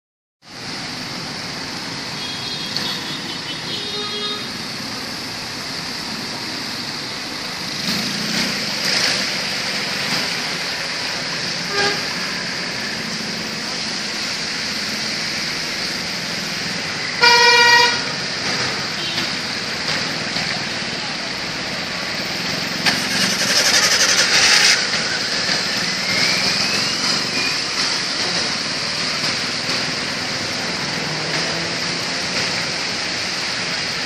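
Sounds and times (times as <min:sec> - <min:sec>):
wet traffic: 0:00.4 - 0:34.0
rain hiss: 0:00.5 - 0:34.0
car horns tooting: 0:11.6 - 0:12.2, 0:17.2 - 0:18.2.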